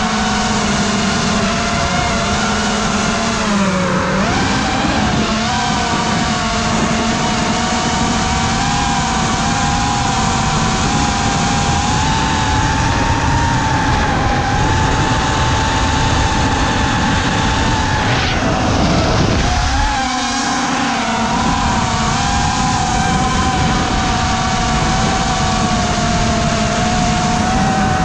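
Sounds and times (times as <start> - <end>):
drone motors whining: 0.0 - 28.0
wind rushing over microphone: 0.0 - 28.0
sound gliding down in pitch: 11.5 - 28.0.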